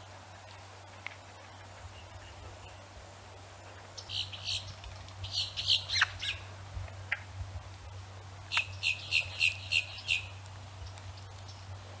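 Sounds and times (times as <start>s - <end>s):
low steady hum: 0.0s - 12.0s
bird chirping: 4.0s - 6.5s, 8.5s - 11.7s.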